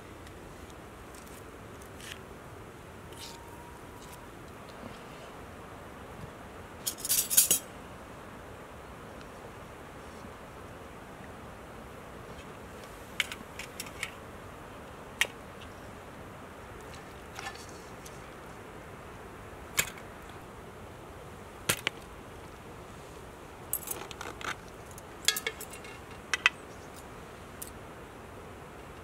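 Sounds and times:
steady background hiss: 0.0s - 29.0s
metal forks clinking on metal: 6.9s - 7.6s.

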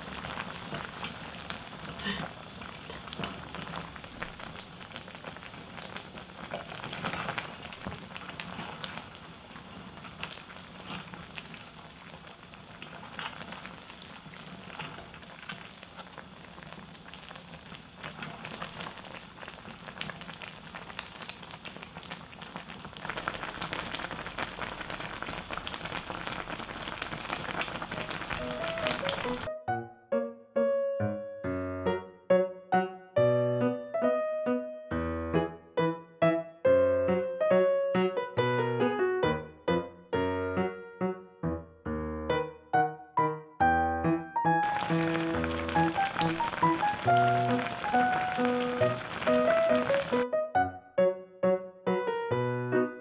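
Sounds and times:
stew bubbling and popping: 0.0s - 29.5s, 44.6s - 50.2s.

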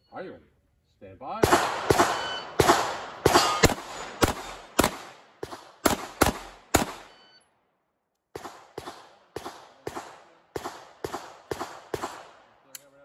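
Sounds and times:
pistol shots with echo: 1.4s - 7.2s, 8.3s - 12.7s.

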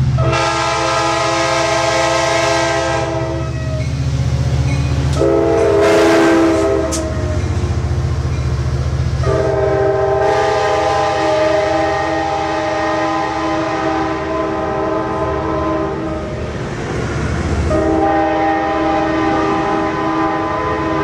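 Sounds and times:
train wheels rumbling on rail: 0.0s - 21.0s
train air horn chord: 0.2s - 3.8s, 5.2s - 7.5s, 9.2s - 16.4s, 17.7s - 21.0s.

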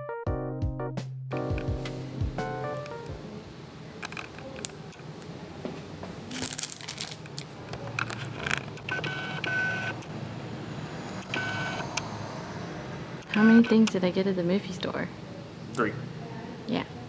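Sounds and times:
short electronic beeps: 11.2s - 11.9s.

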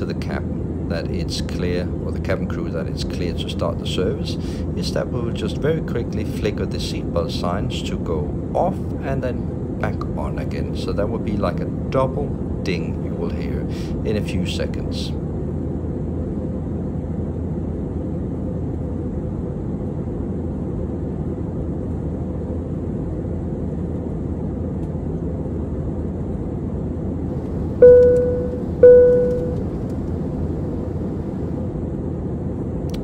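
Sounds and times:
airliner cabin engine noise: 0.0s - 33.0s
single-tone cabin chime: 27.8s - 29.8s.

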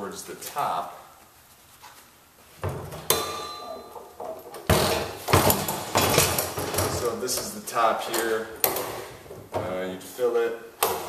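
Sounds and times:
metal latch ringing ping: 3.1s - 4.4s
hollow plastic drum knocks and clunks: 4.2s - 7.3s.

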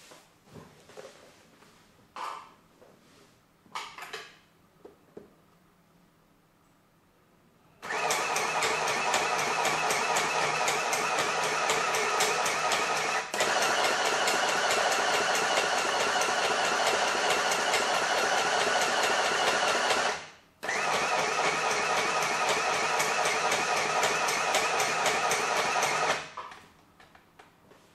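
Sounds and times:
sewing machine stitching: 7.8s - 26.4s.

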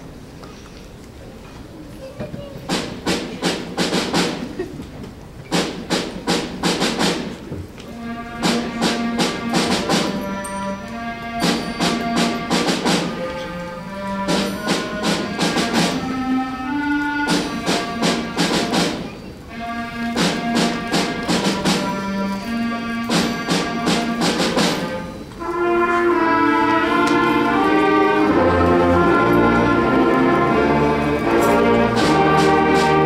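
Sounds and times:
wind instruments sustained notes: 7.8s - 33.0s
sharp percussion strikes: 8.0s - 16.4s, 20.1s - 25.3s.

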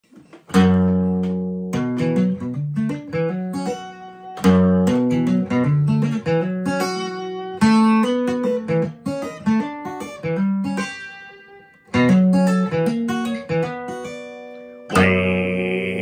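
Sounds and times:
acoustic guitar notes picked: 0.5s - 16.0s
acoustic guitar chord ringing: 14.4s - 16.0s.

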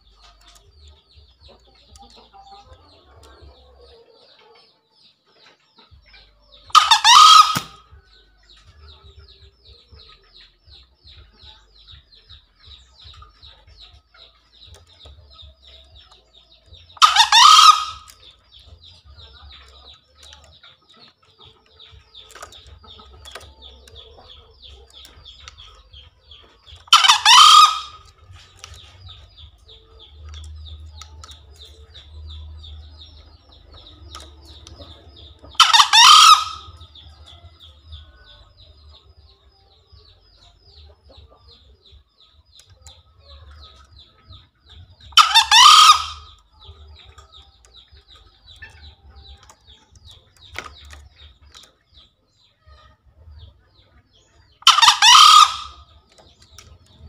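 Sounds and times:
rapid high chirping: 11.7s - 39.1s, 54.5s - 57.0s.

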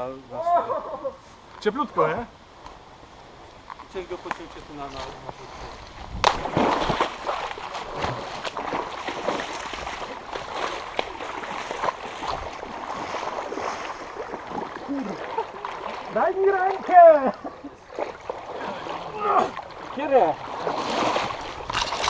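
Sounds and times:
boots splashing through water: 4.4s - 22.0s.

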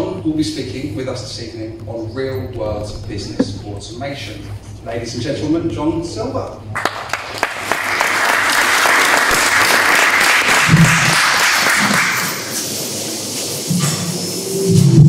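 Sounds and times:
audience applauding: 6.7s - 12.6s.

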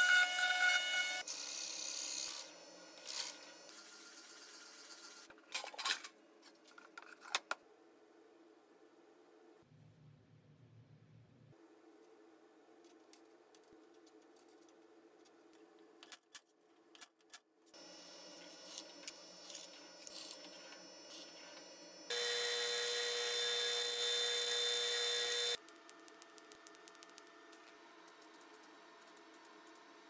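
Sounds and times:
milling machine drill cutting metal: 17.8s - 25.6s
quiet machine hum: 17.8s - 30.0s.

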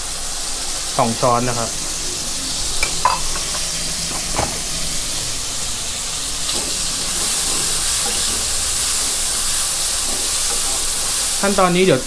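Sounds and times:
food sizzling in a wok: 0.0s - 12.0s.

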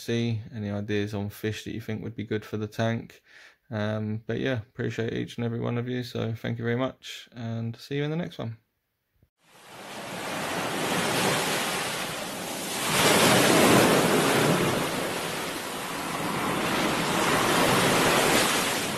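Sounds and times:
ocean surf: 9.5s - 18.9s.

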